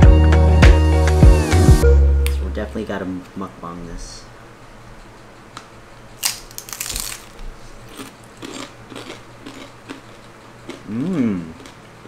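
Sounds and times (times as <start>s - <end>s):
crackly chewing crunches: 6.2s - 11.9s
crunchy food being bitten: 6.2s - 11.9s.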